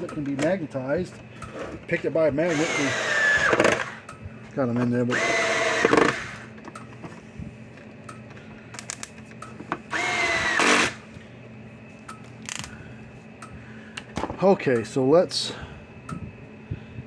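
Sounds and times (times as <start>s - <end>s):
cordless drill motor whine: 1.5s - 4.2s, 4.8s - 6.7s, 9.8s - 11.2s.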